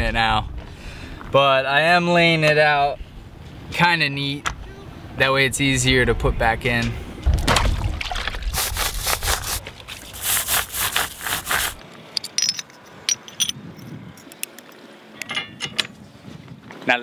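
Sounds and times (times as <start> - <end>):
chain scraping: 10.1 - 14.0
metallic chain links clinking: 12.2 - 13.9.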